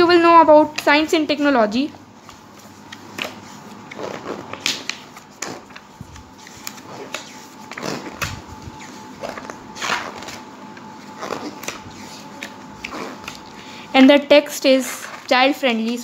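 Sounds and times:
book pages flipping: 2.1 - 13.6, 14.9 - 16.0.

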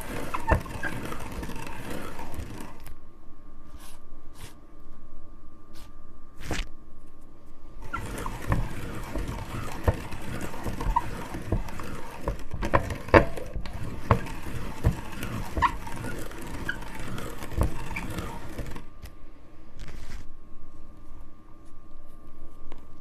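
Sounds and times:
meat grinder crushing candy: 7.8 - 18.8.

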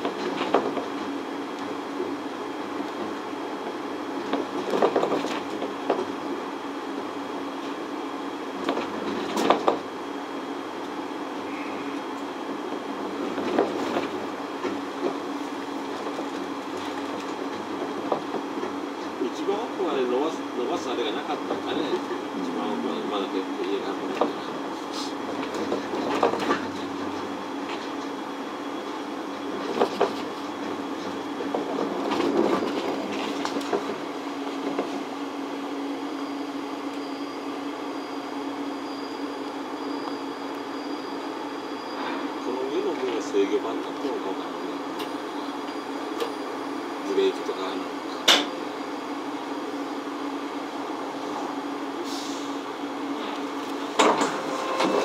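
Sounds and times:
suspended cable car hum: 0.0 - 55.0
faint high whine: 11.4 - 12.3, 20.3 - 24.6, 36.0 - 47.9.

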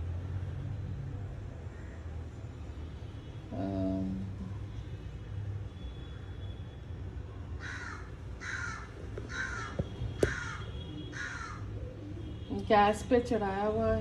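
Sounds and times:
crow cawing: 7.6 - 11.7.

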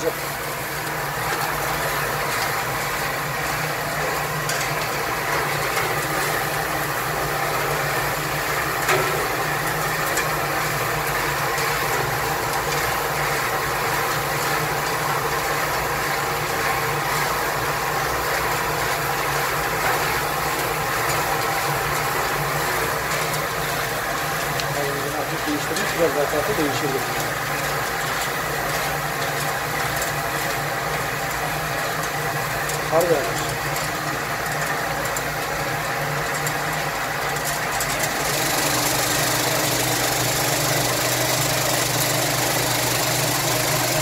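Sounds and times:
nuts tumbling in a drum: 0.0 - 44.0
motor hum: 38.0 - 44.0.

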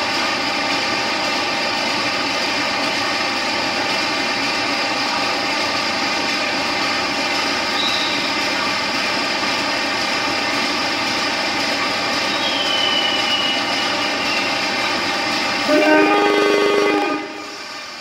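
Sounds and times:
diesel locomotive idling: 0.0 - 18.0
faint high whistling tone: 7.8 - 8.3, 12.3 - 14.6.

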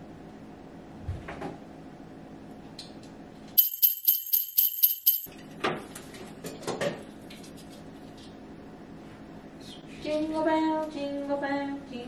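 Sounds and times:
jingle bells shaken: 3.6 - 5.3.

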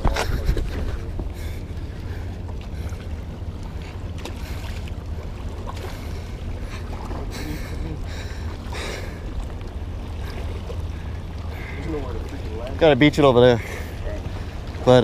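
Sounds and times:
low wind rumble on mic: 0.0 - 3.8
water lapping and sloshing: 0.0 - 15.0.

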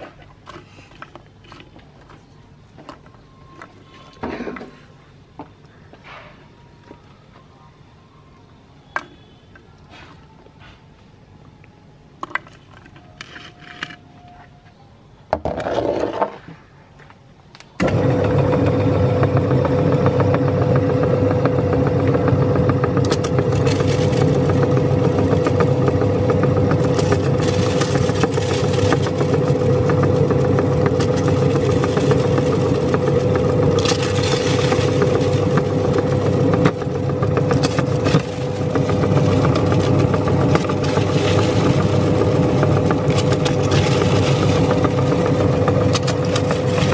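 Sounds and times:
meat grinder motor humming: 17.8 - 46.9
cookies cracking and crunching: 23.1 - 46.9.

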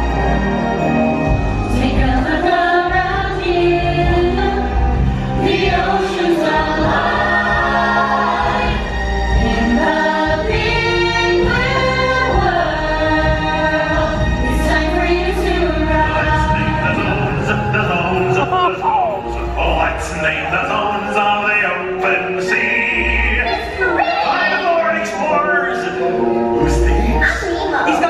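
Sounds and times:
chorus of voices singing: 0.0 - 28.0.

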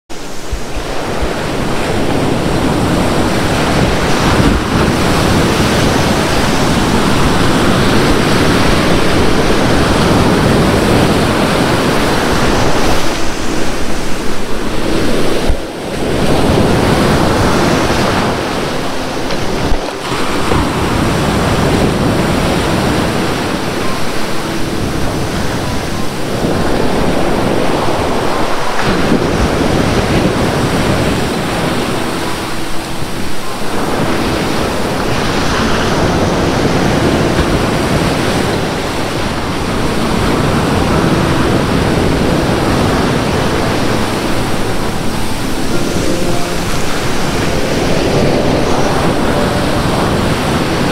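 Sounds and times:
surf washing up a beach: 0.1 - 50.9.

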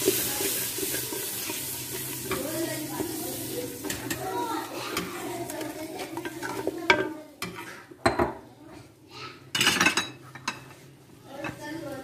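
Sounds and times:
sauce bubbling: 0.0 - 6.9
faint sizzling in oil: 0.0 - 7.7.

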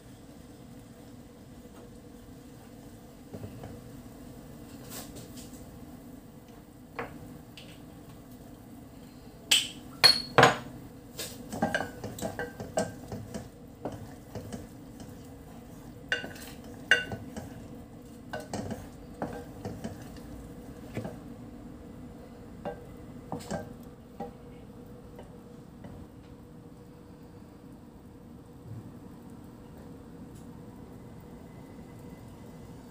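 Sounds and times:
steady low hum: 0.0 - 32.9
wooden spoon scraping a saucepan: 11.5 - 21.2.

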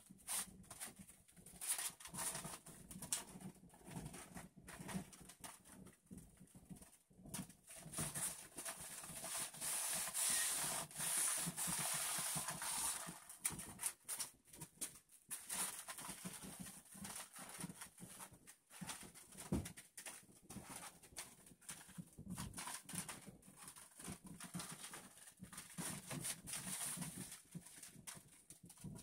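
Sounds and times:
garment steamer hissing: 9.6 - 13.0.

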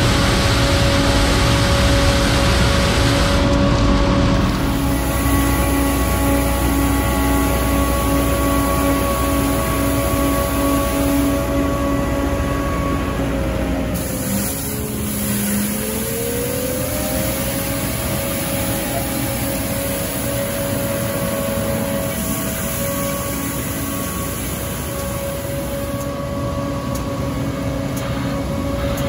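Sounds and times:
street sweeper mechanical drone: 0.0 - 29.0.

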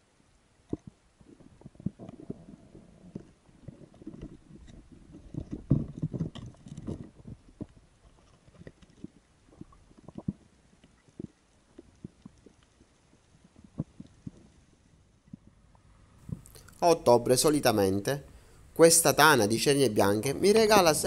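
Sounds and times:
muffled underwater thuds and knocks: 0.7 - 10.4.

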